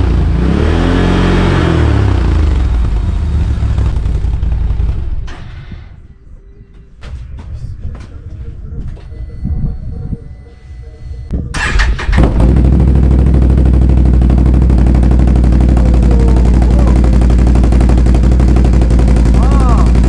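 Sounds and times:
atv engine starting and idling: 0.0 - 5.6, 11.6 - 20.0.

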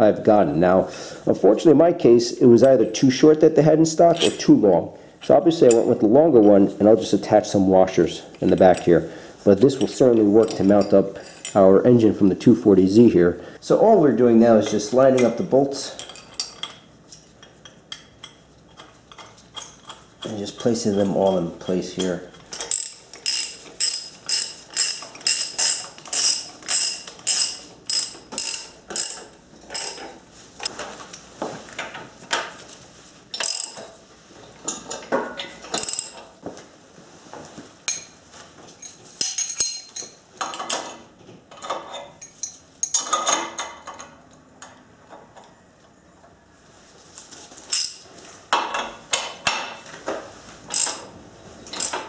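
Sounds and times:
ratchet wrench clicking: 22.0 - 30.0, 33.4 - 33.8, 35.8 - 36.2, 47.7 - 48.0, 50.7 - 51.0, 51.7 - 52.0.

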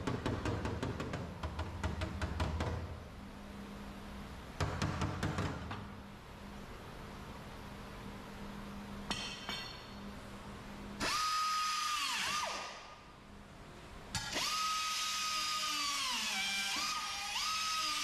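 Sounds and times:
air grinder whining on metal: 11.0 - 12.8, 14.2 - 18.0.

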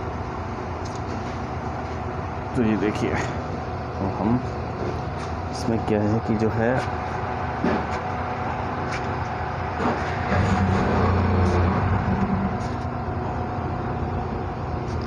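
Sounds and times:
mechanical drone with tone: 8.4 - 15.0.

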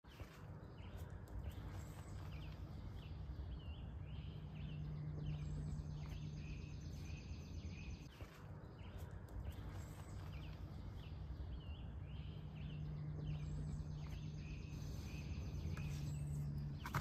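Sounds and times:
low steady hum: 0.1 - 17.0.

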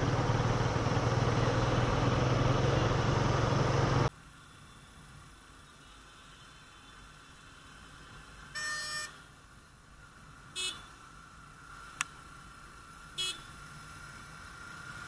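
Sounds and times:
faint riding hum: 0.0 - 15.0
vehicle horn honking: 8.6 - 9.2, 10.6 - 10.9, 13.2 - 13.5.

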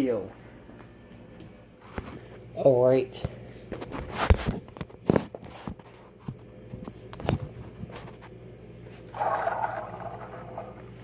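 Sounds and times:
toy truck rolling on floor: 9.1 - 10.9.

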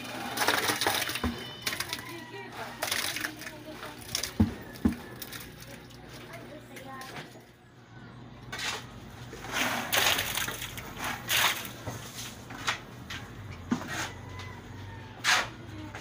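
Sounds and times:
wet concrete splashing: 0.0 - 7.4, 8.7 - 11.8.

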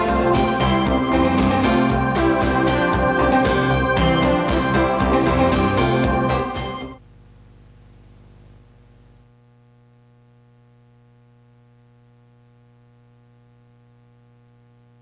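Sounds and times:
electrical mains hum: 6.9 - 15.0
low hiss: 7.0 - 9.3.

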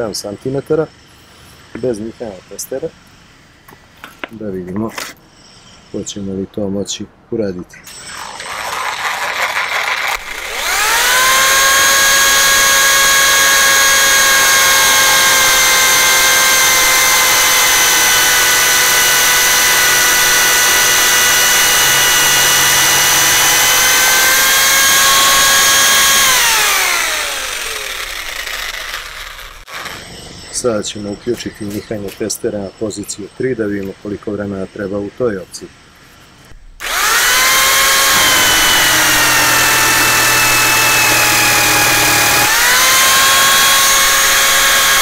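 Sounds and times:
jigsaw motor whine: 7.9 - 30.2, 36.8 - 45.0
saw blade cutting wood: 7.9 - 30.7, 36.8 - 45.0.

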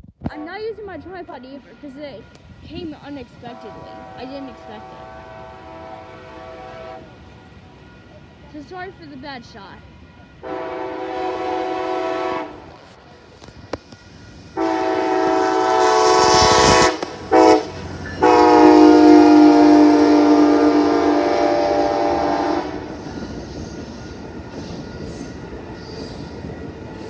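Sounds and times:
train rumbling past: 0.3 - 27.0
train horn blasts: 3.5 - 7.1, 10.4 - 12.8, 14.5 - 22.9.

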